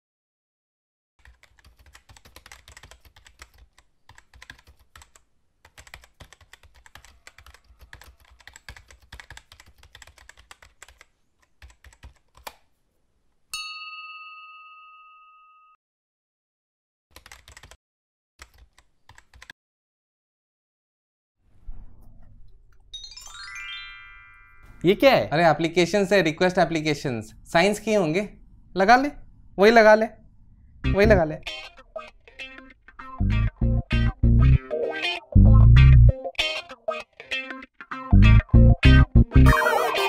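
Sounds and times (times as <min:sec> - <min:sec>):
typewriter keys clicking: 0:01.2 - 0:11.0, 0:17.2 - 0:17.8
typewriter bell ding: 0:13.6 - 0:15.8.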